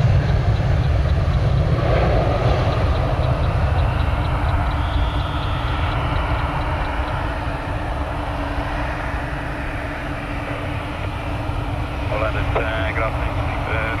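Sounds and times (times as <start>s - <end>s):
faint steady hum: 0.0s - 14.0s
jet engines at takeoff thrust: 0.0s - 14.0s.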